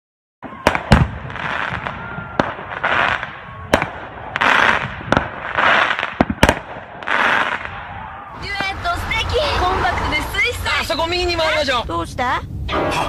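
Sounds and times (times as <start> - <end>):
firework bangs: 0.4 - 10.6
hissing crackling firework bursts: 0.7 - 7.8.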